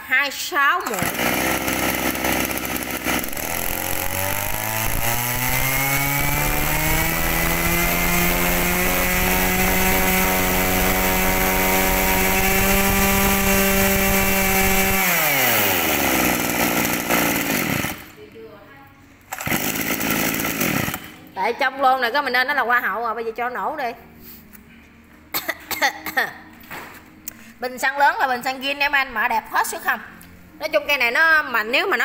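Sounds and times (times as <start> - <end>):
brush cutter engine revving: 0.8 - 18.2, 19.3 - 21.2.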